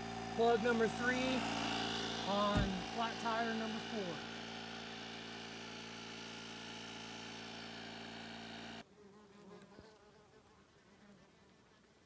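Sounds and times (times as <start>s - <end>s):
compressor electric hum: 0.0s - 8.8s
yellowjackets buzzing: 0.0s - 11.6s.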